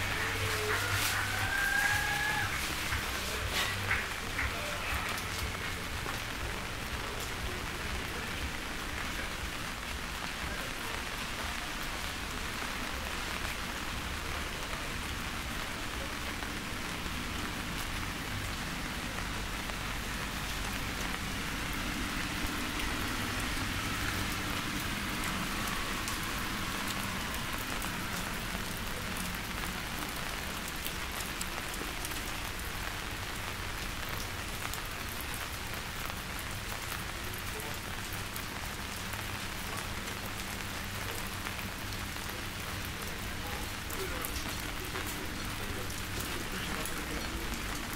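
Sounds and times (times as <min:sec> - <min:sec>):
raindrops clicking: 0:00.0 - 0:13.6, 0:39.8 - 0:47.9
steady rain hiss: 0:00.0 - 0:47.9.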